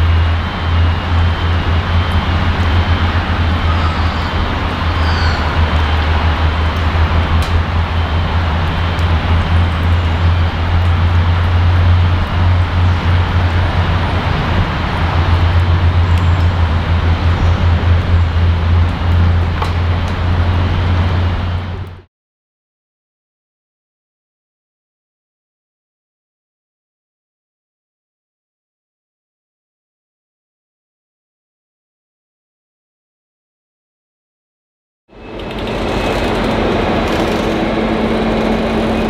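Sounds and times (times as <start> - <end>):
locomotive engine droning: 0.0 - 22.1, 35.1 - 39.0.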